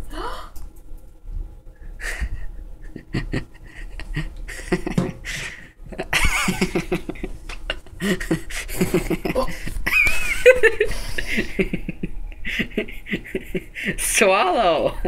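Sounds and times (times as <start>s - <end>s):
person gagging: 8.0s - 9.7s.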